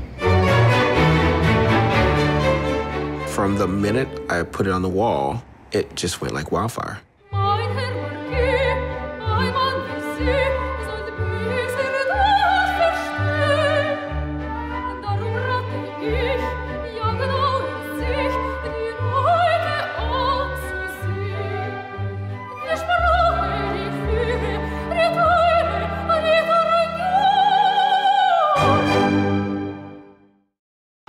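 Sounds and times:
orchestral accompaniment: 0:00.0 - 0:05.4, 0:07.3 - 0:30.3
opera singer with vibrato: 0:07.3 - 0:29.4.

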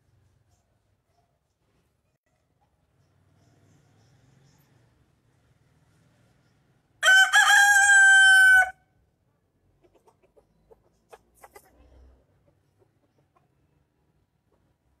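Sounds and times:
rooster crowing: 0:07.0 - 0:08.8
chicken clucking: 0:09.8 - 0:14.8.

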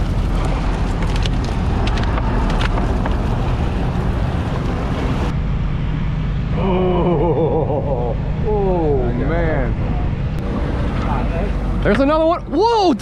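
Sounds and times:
wind on microphone: 0:00.0 - 0:07.0.

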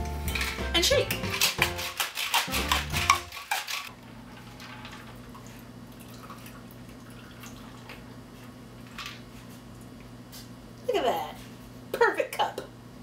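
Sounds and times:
ice rattling in cocktail shaker: 0:00.3 - 0:05.2.

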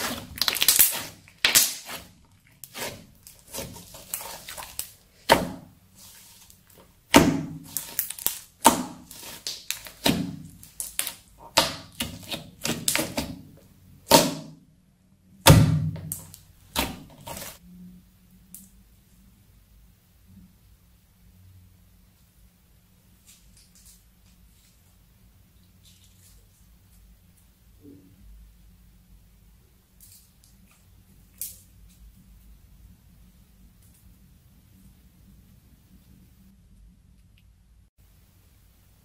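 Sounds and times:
slime crackling and popping: 0:00.0 - 0:13.4.

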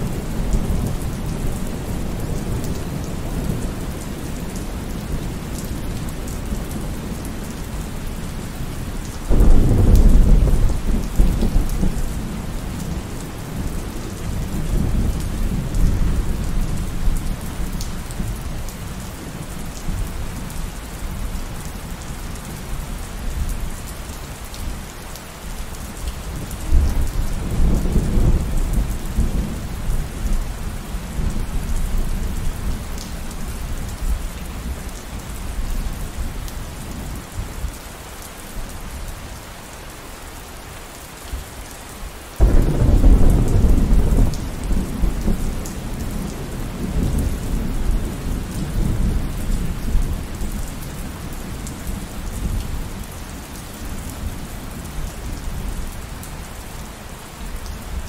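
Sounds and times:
steady rain: 0:00.0 - 0:58.0
thunder rumbling: 0:42.4 - 0:49.9.

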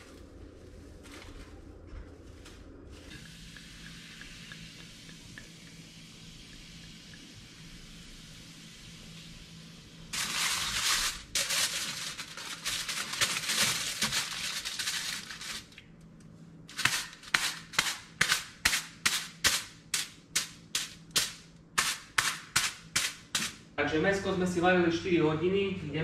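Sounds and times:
aluminium foil crinkling: 0:10.1 - 0:15.8, 0:16.7 - 0:19.4.

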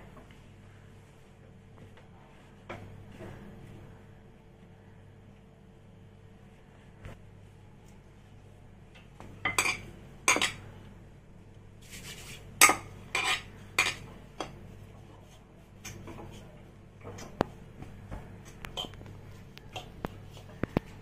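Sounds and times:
utensils clinking against dishes: 0:09.4 - 0:10.6, 0:12.6 - 0:14.6.

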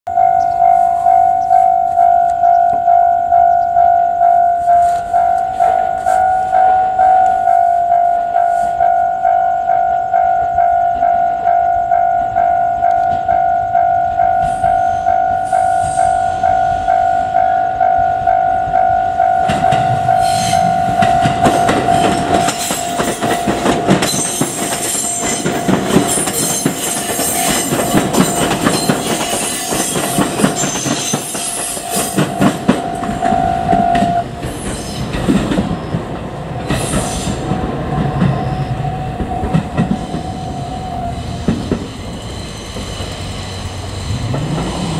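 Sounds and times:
level crossing alarm bell: 0:00.1 - 0:34.4
train wheels clacking over rail joints: 0:19.4 - 0:40.7, 0:41.4 - 0:44.9.

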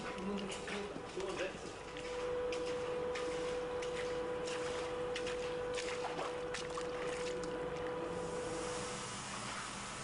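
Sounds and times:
thin steady hum: 0:00.0 - 0:10.0
short splashes: 0:02.6 - 0:08.0.

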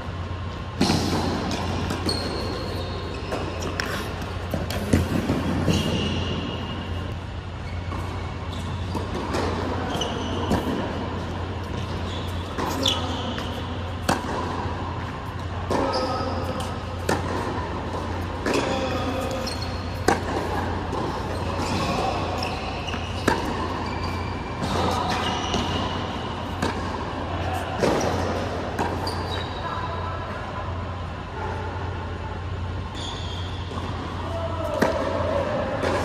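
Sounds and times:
low hum in hall: 0:00.0 - 0:36.0
tennis ball bouncing: 0:00.7 - 0:06.5, 0:07.9 - 0:29.4
racquet hitting tennis ball: 0:00.7 - 0:07.2, 0:07.8 - 0:29.4, 0:33.6 - 0:36.0
shoe squeaks: 0:00.9 - 0:14.0, 0:15.7 - 0:17.0, 0:18.5 - 0:26.6, 0:27.4 - 0:30.2, 0:32.5 - 0:34.6.

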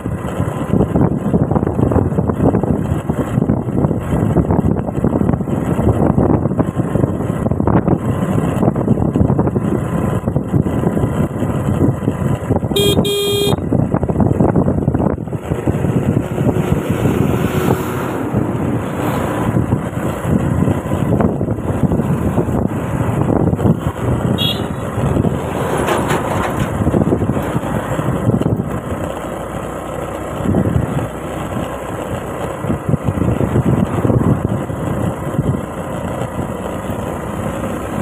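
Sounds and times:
scooter engine running: 0:00.0 - 0:38.0
wind and road rush: 0:00.0 - 0:38.0
vehicle horn toot: 0:12.7 - 0:13.6, 0:24.4 - 0:24.9.

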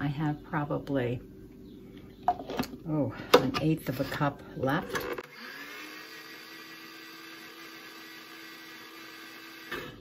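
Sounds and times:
food processor motor whine: 0:04.8 - 0:10.0.

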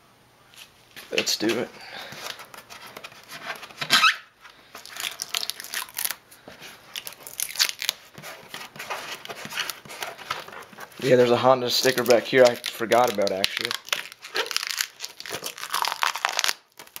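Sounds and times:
rubber coating tearing: 0:03.8 - 0:04.2, 0:04.8 - 0:06.2, 0:06.9 - 0:17.0.

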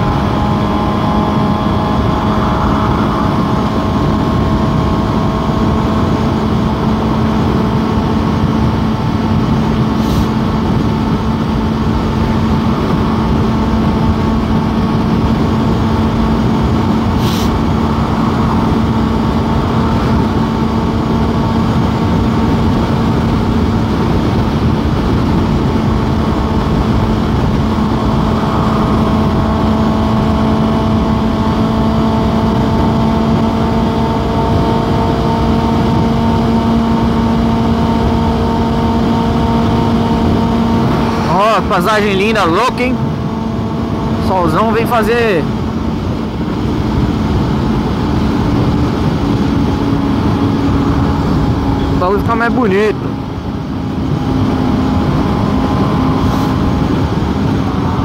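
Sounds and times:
motorcycle engine cruising: 0:00.0 - 0:58.0
road and wind noise: 0:00.0 - 0:58.0.

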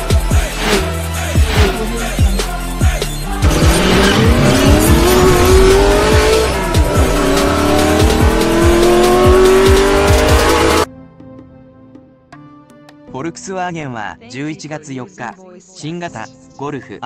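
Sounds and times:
music with steady beat: 0:00.0 - 0:10.9
car engine accelerating: 0:03.3 - 0:10.9.

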